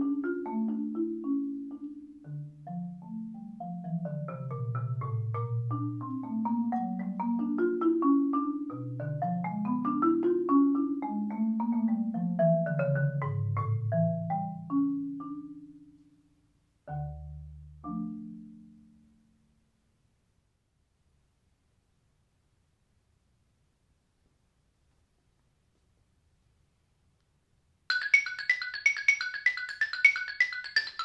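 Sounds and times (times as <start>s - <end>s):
solo marimba: 0.0s - 19.6s, 27.9s - 31.0s.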